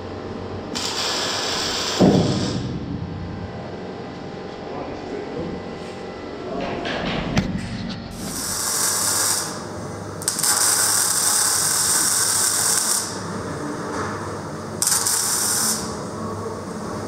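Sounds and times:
steady low hum: 0.0 - 17.0
arc welding crackle: 0.7 - 2.7, 8.1 - 17.0.

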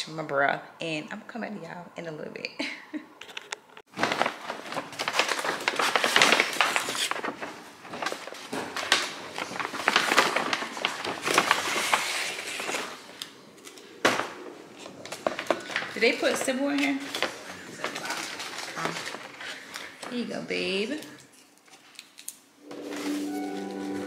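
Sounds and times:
takeout bag crinkling: 3.3 - 13.9, 14.7 - 20.2.

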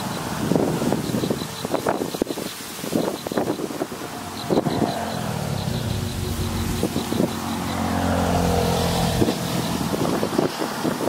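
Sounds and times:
engine humming: 3.0 - 10.5.

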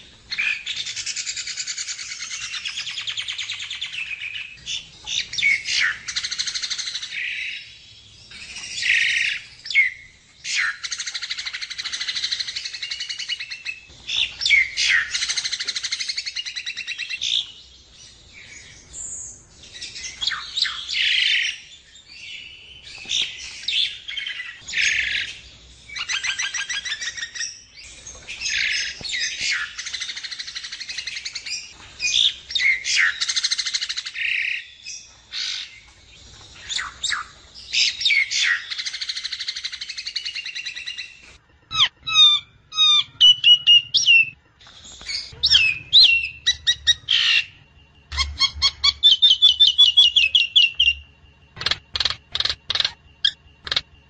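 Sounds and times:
myna bird chattering and whistling: 22.3 - 35.9, 36.5 - 54.0.

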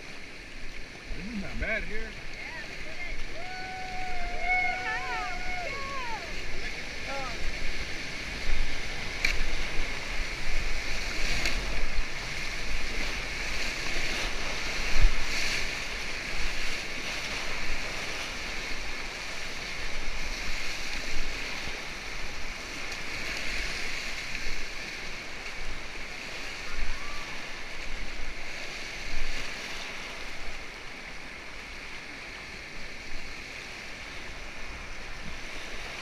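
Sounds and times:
whitewater rushing and splashing: 0.0 - 36.0.

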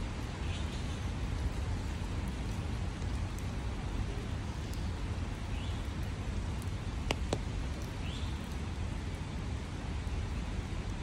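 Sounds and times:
steady rain: 0.0 - 11.0
sharp taps: 7.0 - 7.5.

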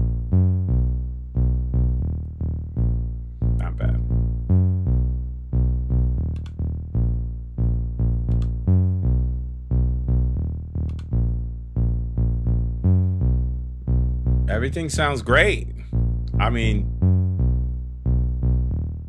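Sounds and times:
deep bass line: 0.0 - 19.0
faint clicks: 6.2 - 6.6, 8.3 - 8.6, 10.8 - 11.2.

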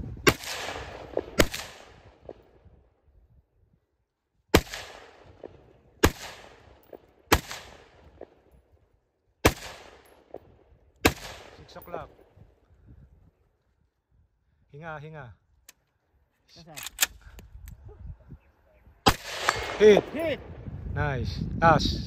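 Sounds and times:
rifle shots with echo: 0.2 - 2.5, 4.5 - 8.5, 9.4 - 12.3, 19.0 - 20.5.

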